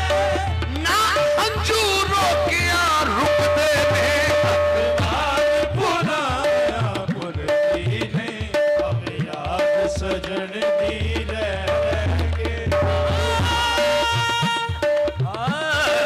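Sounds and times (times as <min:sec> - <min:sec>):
harmonium held note: 0:00.0 - 0:07.0
fast hand drum strokes: 0:00.0 - 0:16.0.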